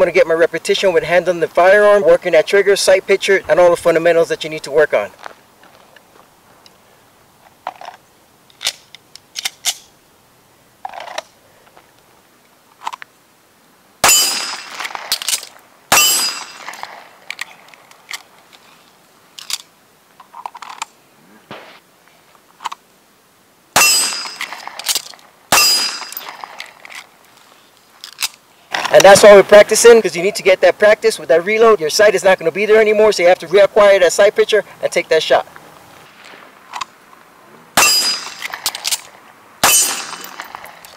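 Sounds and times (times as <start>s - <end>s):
gun handling clicks and clacks: 7.4s - 9.9s, 10.8s - 11.4s, 12.7s - 13.1s, 14.5s - 15.6s, 16.4s - 18.7s, 19.3s - 21.0s, 22.6s - 22.8s, 24.1s - 29.1s, 36.2s - 37.2s, 38.1s - 40.9s
handgun shots: 14.0s - 17.0s, 23.8s - 26.7s, 37.8s - 39.0s, 39.6s - 40.6s.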